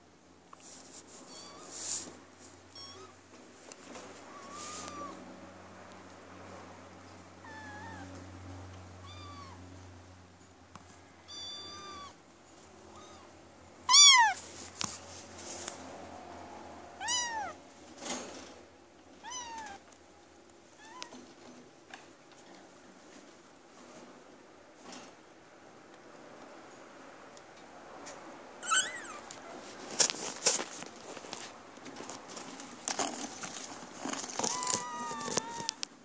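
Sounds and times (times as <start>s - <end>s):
kittens mewing: 4.2s - 5.2s, 7.4s - 8.2s, 9.0s - 9.7s, 13.9s - 14.4s, 17.0s - 17.6s, 28.6s - 29.6s, 34.0s - 35.8s.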